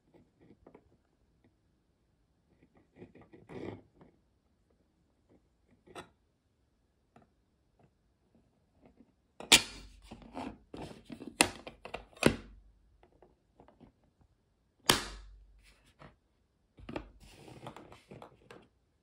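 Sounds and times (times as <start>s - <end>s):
plastic case snapping: 14.9s - 15.4s
plastic scraping and rubbing: 16.8s - 18.7s.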